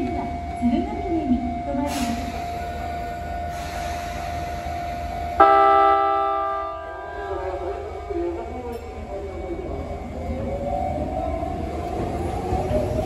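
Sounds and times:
electric train horn blast: 5.4s - 7.3s.

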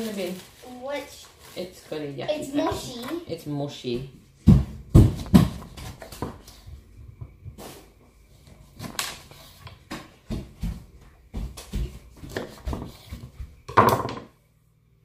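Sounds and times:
loud knocks: 13.7s - 14.3s.

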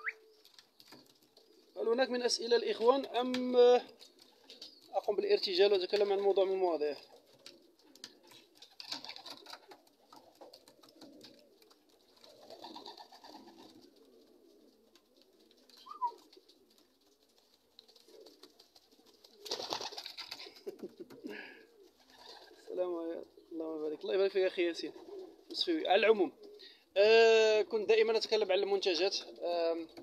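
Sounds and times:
wings flapping: 0.0s - 1.7s, 2.9s - 6.3s, 6.9s - 22.7s
pigeons cooing: 0.0s - 30.0s.

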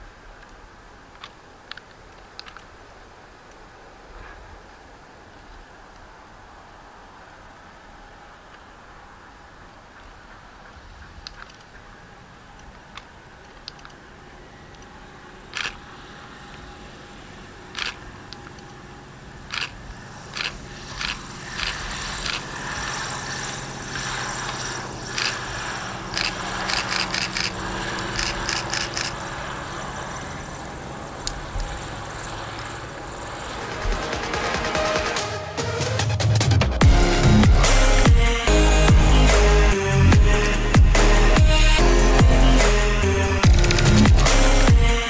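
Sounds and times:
propeller aircraft engines droning: 0.0s - 45.0s
camera shutter clicking: 15.5s - 15.8s, 17.8s - 18.0s, 19.5s - 22.4s, 26.2s - 27.5s, 28.2s - 29.2s.

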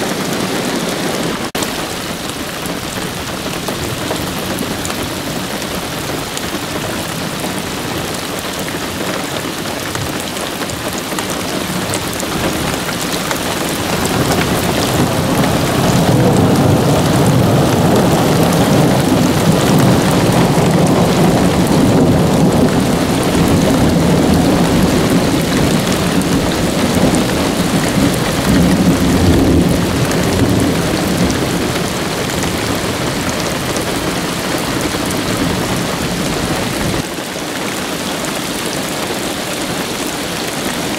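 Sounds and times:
rain falling: 0.0s - 40.9s
thunder rumbling: 11.0s - 37.0s.

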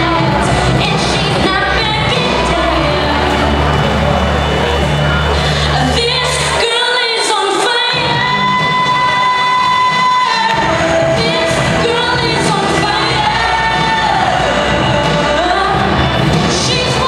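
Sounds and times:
girl singing into a microphone: 0.0s - 3.4s, 5.7s - 17.0s
backing music: 0.0s - 17.0s.

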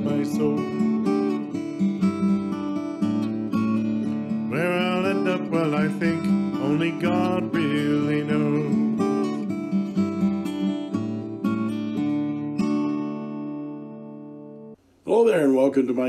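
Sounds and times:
acoustic guitar playing: 0.0s - 14.8s.

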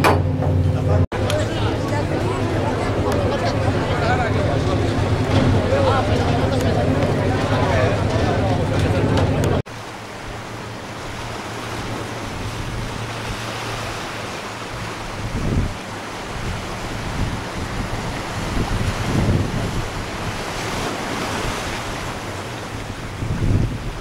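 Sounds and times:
sea and surf: 0.0s - 24.0s
wind buffeting microphone: 10.3s - 24.0s.

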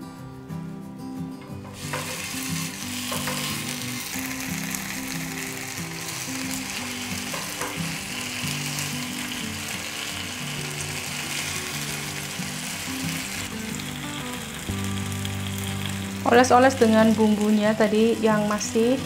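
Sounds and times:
light background music: 0.0s - 19.0s
chicken sizzling on a grill pan: 1.8s - 19.0s.

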